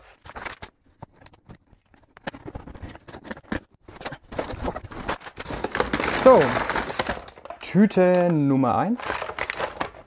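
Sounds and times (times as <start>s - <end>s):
cardboard boxes rustling: 2.3s - 7.6s.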